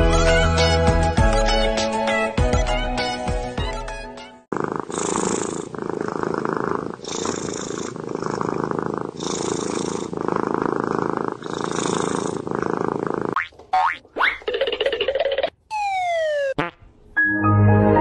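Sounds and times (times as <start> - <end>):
music: 0.0 - 4.5, 17.2 - 18.0
kitten purring: 4.5 - 13.4.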